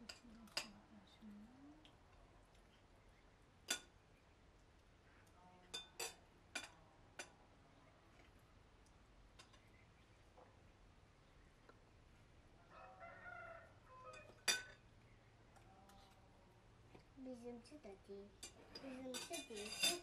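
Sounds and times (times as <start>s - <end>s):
cutlery clinking against dishes: 3.7s - 3.9s, 5.7s - 7.4s, 14.1s - 14.8s, 18.4s - 20.0s.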